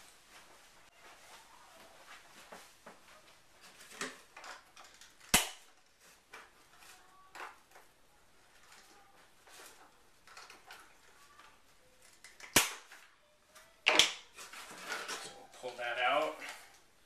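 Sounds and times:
sharp snap: 5.3 - 5.7, 12.4 - 12.9.

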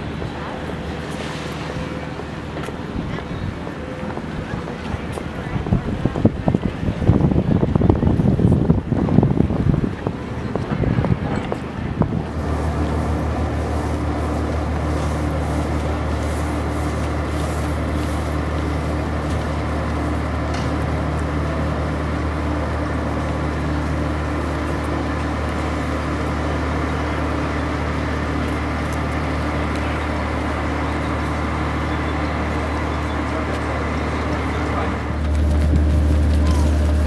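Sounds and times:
machinery low drone: 0.0 - 37.0.

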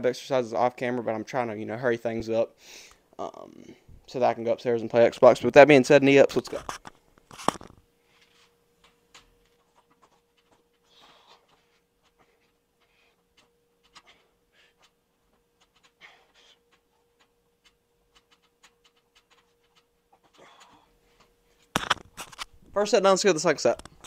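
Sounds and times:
faint steady hum: 0.0 - 24.0
faint panting breaths: 9.2 - 21.7.

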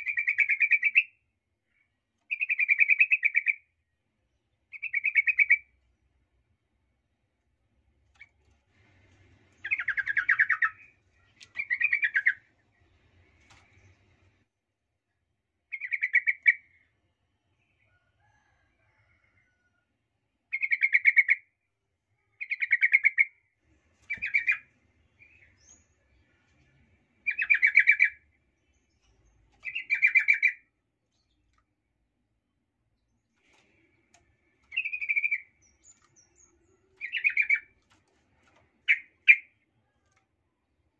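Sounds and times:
bird chattering song: 0.0 - 1.2, 2.3 - 3.7, 4.7 - 5.7, 9.6 - 12.5, 15.7 - 16.8, 20.5 - 21.4, 22.4 - 23.4, 24.1 - 24.6, 27.2 - 31.4, 34.7 - 37.8, 38.8 - 39.6.

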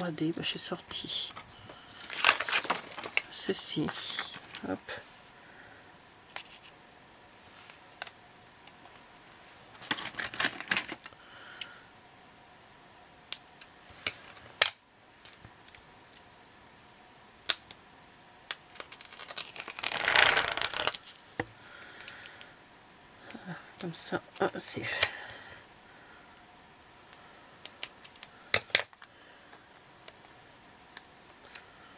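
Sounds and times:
paper rustling: 1.3 - 4.8.

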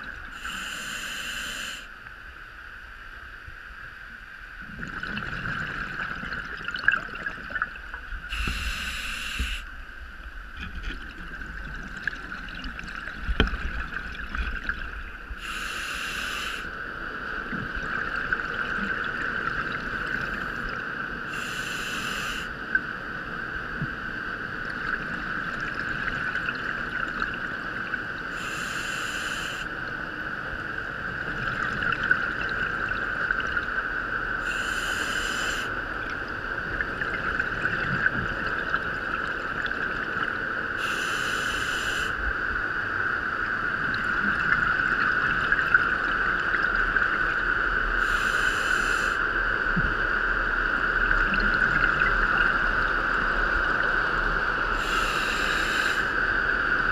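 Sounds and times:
steady high-pitched hum: 0.0 - 56.9
diver breathing through regulator: 0.3 - 1.9, 8.3 - 9.7, 15.4 - 16.7, 21.3 - 22.5, 28.3 - 29.7, 34.4 - 35.7, 40.8 - 42.2, 48.0 - 49.2, 54.8 - 56.2
bubbles rushing: 4.7 - 7.8, 10.6 - 15.0.

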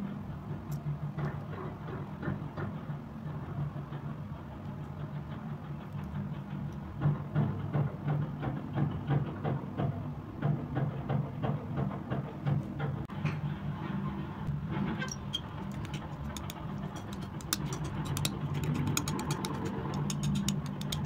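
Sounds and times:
palette knife scraping paint: 15.4 - 21.0.

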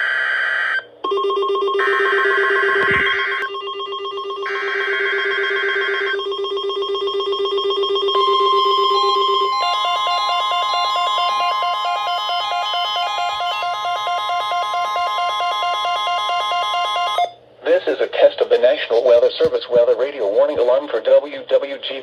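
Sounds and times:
steady alarm tone: 0.0 - 17.4
receiver alert beeps: 1.1 - 17.4.

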